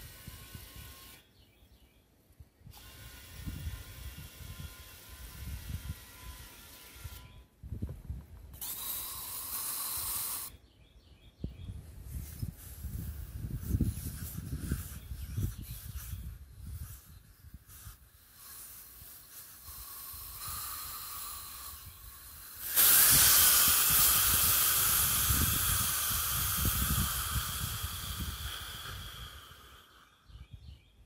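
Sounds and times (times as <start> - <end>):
air hissing out of tire: 8.6 - 10.5, 12.0 - 30.3.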